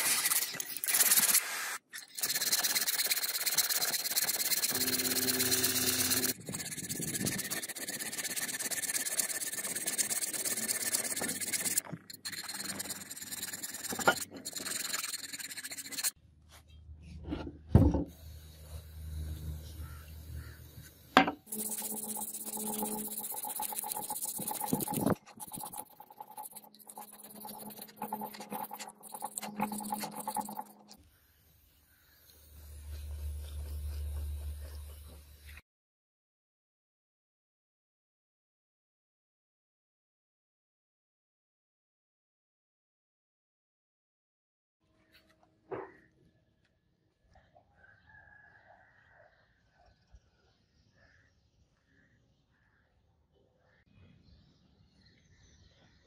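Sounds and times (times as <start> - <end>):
metal rubbed on sandpaper: 0.0 - 16.2, 19.1 - 35.6
hand file rasping on metal: 2.1 - 16.2, 21.5 - 31.0.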